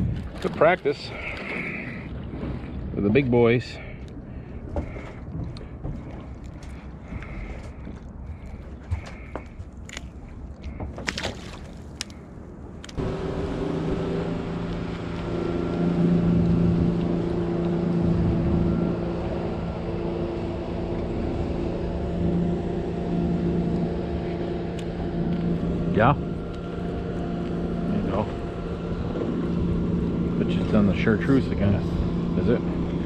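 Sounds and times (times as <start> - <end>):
boat engine humming: 0.0 - 33.0.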